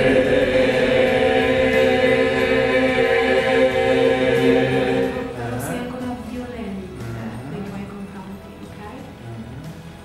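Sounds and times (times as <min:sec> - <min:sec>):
group of voices chanting: 0:00.0 - 0:05.5.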